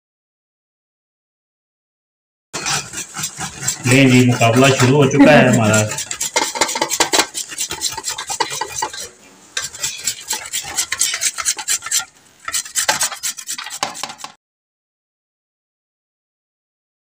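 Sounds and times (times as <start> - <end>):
carrots grated on metal graters: 2.6 - 14.4.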